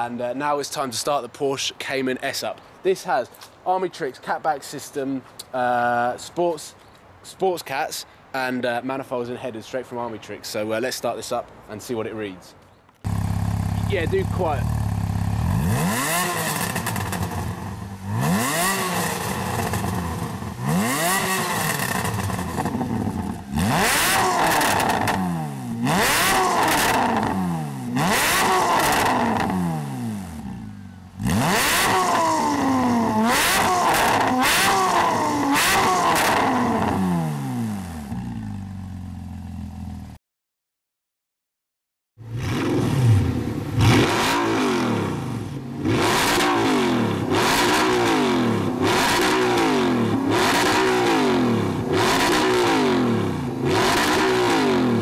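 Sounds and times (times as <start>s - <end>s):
second car engine revving: 13.0s - 39.9s, 42.2s - 55.0s
car engine revving: 13.1s - 38.6s, 42.2s - 55.0s.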